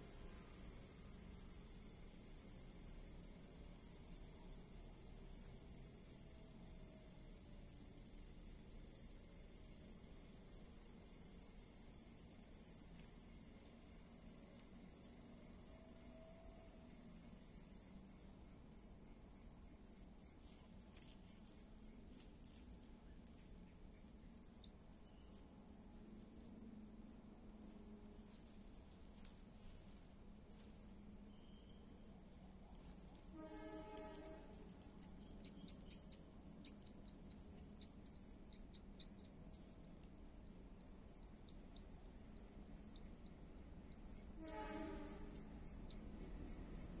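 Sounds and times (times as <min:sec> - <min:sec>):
crickets shrilling: 0:00.0 - 0:47.0
fast pulsing chirp: 0:34.6 - 0:44.4.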